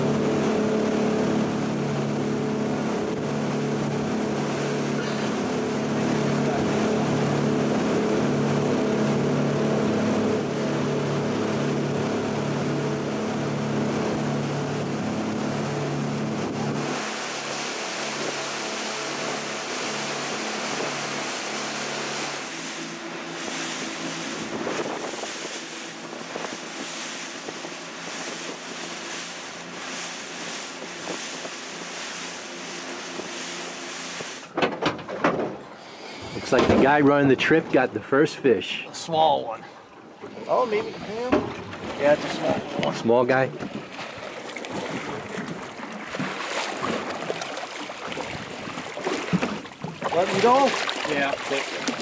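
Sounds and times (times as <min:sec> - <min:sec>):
boat motor droning: 0:00.0 - 0:52.0
wind noise on microphone: 0:24.2 - 0:28.7.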